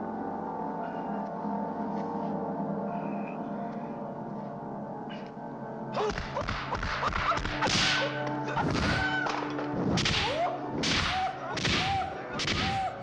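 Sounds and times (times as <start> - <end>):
punch and kick hits: 9.9 - 12.9
high-pitched martial arts yells: 10.1 - 13.0.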